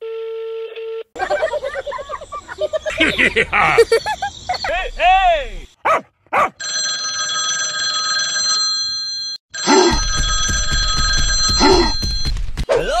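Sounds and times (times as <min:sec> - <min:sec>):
telephone ringing: 0:06.6 - 0:12.4.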